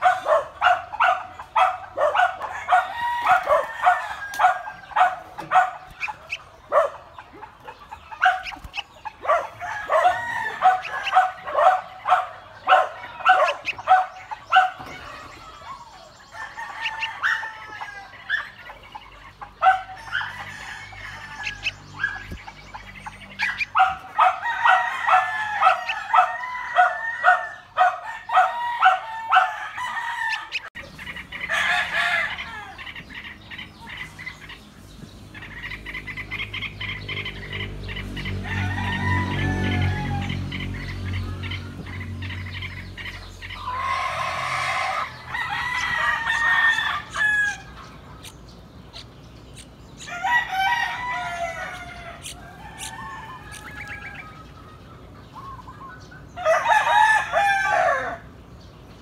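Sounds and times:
bulbuls chirping: 0.0 - 59.0.

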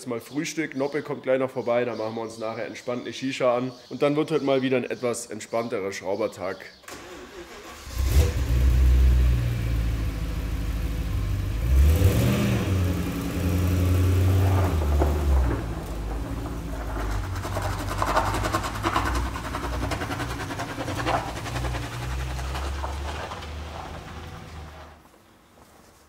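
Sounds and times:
car engine starting and running: 6.8 - 25.1.

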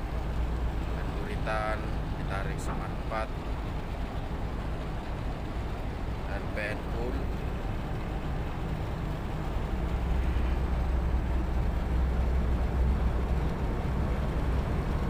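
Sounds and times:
tug diesel engine rumbling: 0.0 - 15.0.

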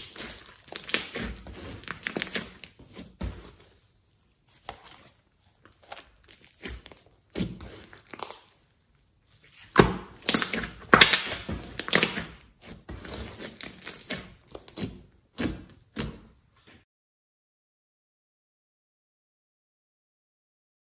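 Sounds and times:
slime squelching and clicking: 0.0 - 16.5.

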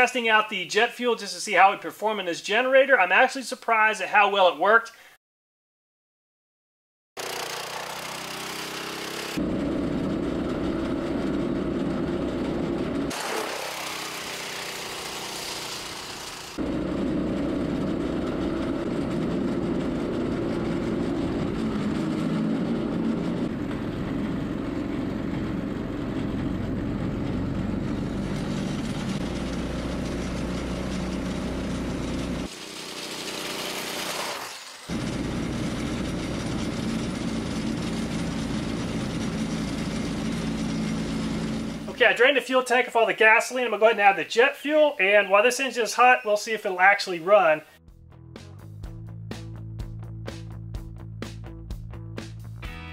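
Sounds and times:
small gasoline engine running: 7.2 - 42.0.

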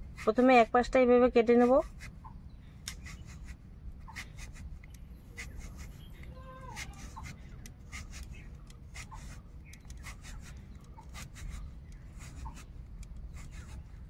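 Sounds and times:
crisp scraping cuts on blade: 5.3 - 14.0.

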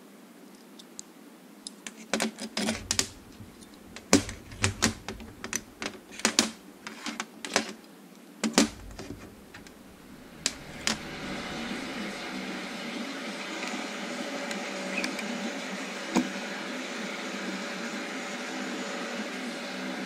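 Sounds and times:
steel parts clicking and clinking: 2.6 - 6.7.

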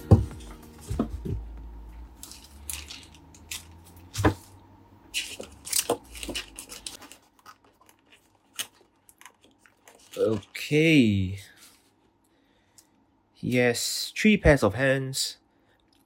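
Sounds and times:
plastic wrap crinkling on foam: 5.2 - 11.8.

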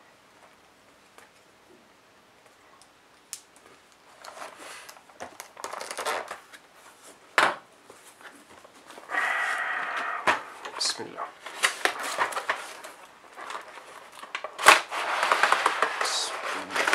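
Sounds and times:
plastic packaging crinkling: 3.6 - 6.6, 10.5 - 16.9.

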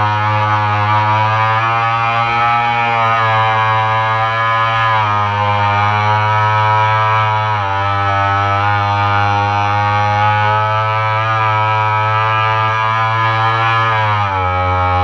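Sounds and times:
model boat motor whine: 0.0 - 15.0.

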